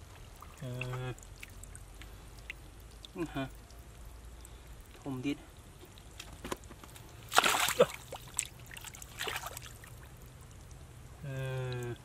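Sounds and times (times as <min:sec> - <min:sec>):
hands splashing in shallow water: 0:07.3 - 0:09.8.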